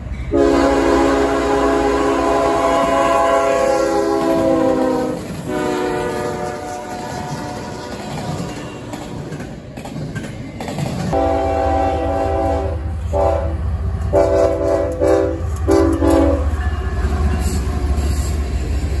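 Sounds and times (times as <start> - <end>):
passing train cars rumbling: 0.0 - 19.0
locomotive air horn blasts: 0.3 - 8.0, 11.2 - 16.6
locomotive engine rumble: 11.0 - 19.0.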